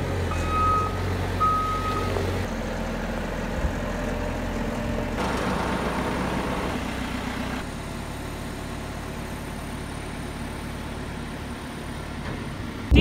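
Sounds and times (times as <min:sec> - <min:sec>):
diesel engine running: 0:00.0 - 0:13.0
reverse alarm beeps: 0:00.3 - 0:02.2.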